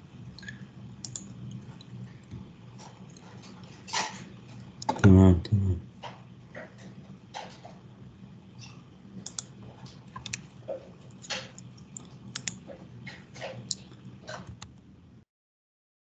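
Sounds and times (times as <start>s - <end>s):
steady low hum: 0.0s - 15.2s
keyboard and mouse clicks: 0.4s - 2.4s, 8.6s - 9.6s, 10.2s - 10.5s, 11.1s - 14.8s.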